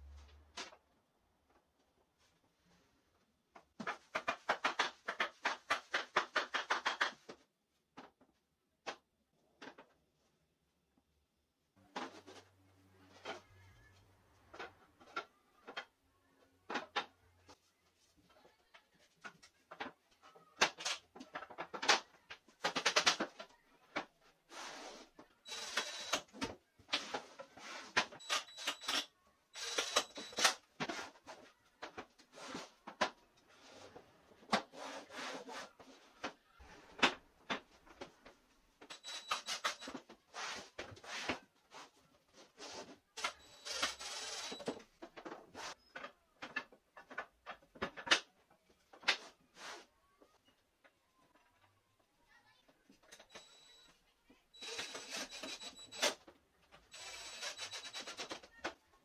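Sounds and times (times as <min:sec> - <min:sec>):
wooden dowels sliding and rubbing: 0:33.4 - 0:37.0.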